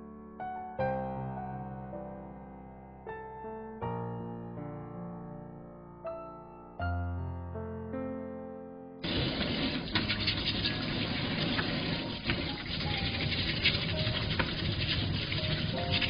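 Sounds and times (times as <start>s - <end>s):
piano note: 0.0s - 16.0s
tap water running into steel sink: 9.0s - 16.0s
brush scrubbing crabs: 9.1s - 16.0s.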